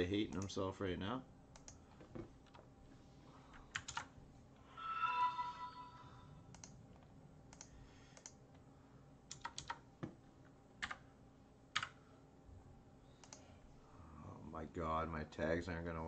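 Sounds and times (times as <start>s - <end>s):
computer keyboard keystrokes: 3.7s - 4.1s, 9.3s - 9.8s, 10.8s - 11.0s, 11.7s - 12.0s.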